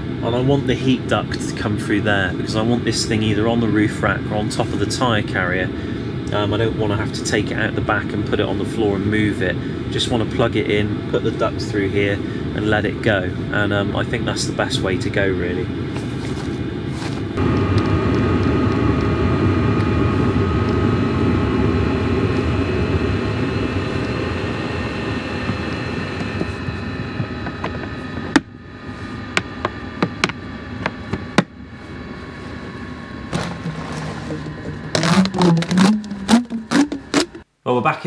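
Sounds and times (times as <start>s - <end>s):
heater droning with faint whine: 0.0s - 38.0s
case lid shutting: 33.3s - 37.4s
handling noise: 33.3s - 37.4s.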